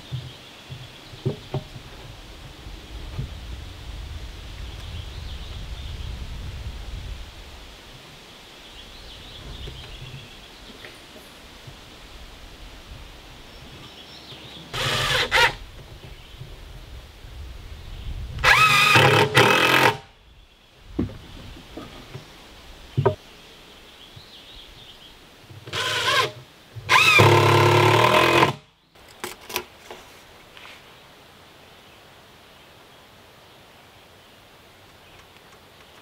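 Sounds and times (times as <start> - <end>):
impact driver driving screws: 14.8 - 15.6, 18.4 - 20.0, 25.7 - 28.6.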